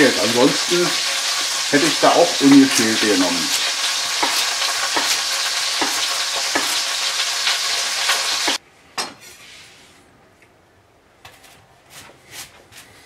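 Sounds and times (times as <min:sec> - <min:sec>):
meat sizzling in a pan: 0:00.0 - 0:08.6.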